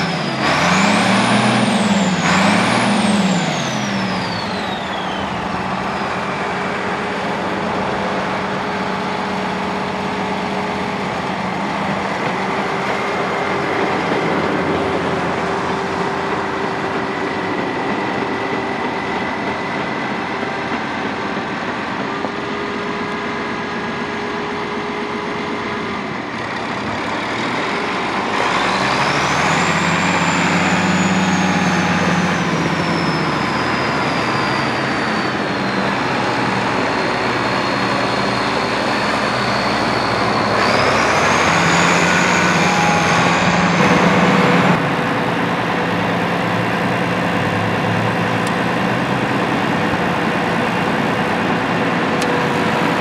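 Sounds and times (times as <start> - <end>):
high turbo whistle: 0.0 - 20.7, 27.5 - 45.9
tractor diesel engine running: 0.0 - 53.0.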